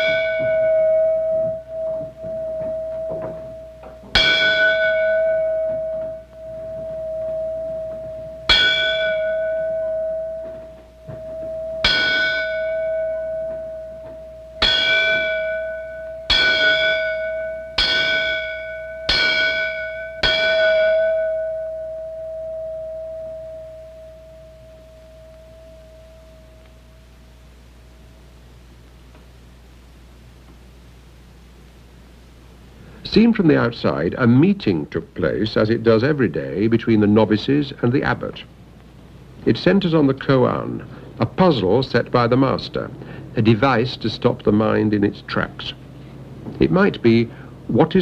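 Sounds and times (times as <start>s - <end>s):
small metal bell ringing: 0.0s - 26.7s
steady ringing tone: 0.0s - 28.8s.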